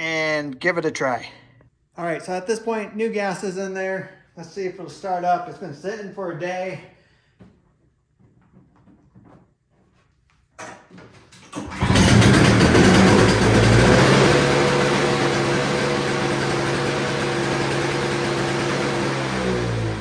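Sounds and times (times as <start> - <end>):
snowblower engine cranking: 11.5 - 20.0
snowblower engine running loudly: 11.7 - 20.0.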